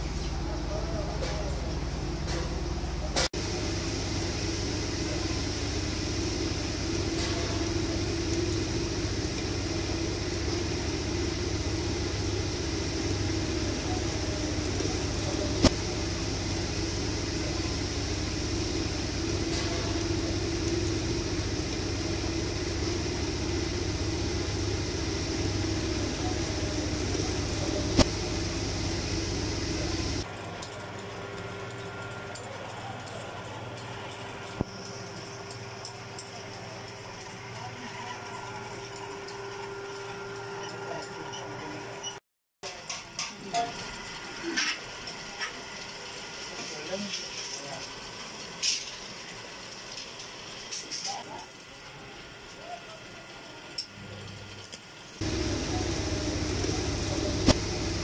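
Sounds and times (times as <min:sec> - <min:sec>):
low hum: 0:00.0 - 0:30.2, 0:55.2 - 0:58.0
workshop machinery drone: 0:00.0 - 0:58.0.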